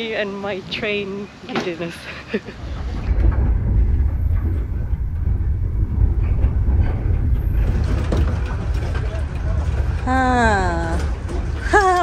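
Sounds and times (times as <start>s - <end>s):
train rumbling: 0.0s - 12.0s
faint knocks and rattles: 2.4s - 12.0s.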